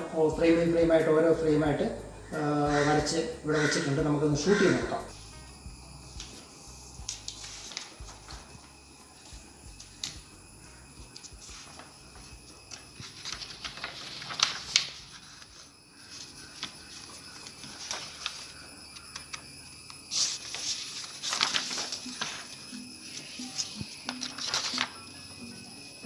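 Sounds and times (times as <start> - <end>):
drawing paper rustling: 6.1 - 10.4, 11.0 - 25.2.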